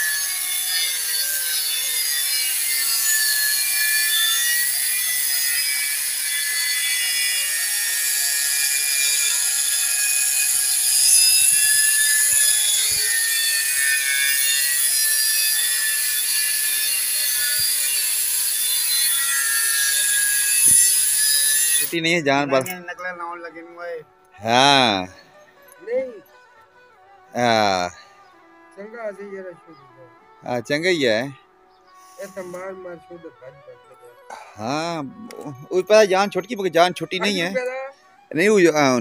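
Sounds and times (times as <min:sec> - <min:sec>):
angle grinder grinding metal: 0:00.0 - 0:29.8, 0:30.4 - 0:39.0.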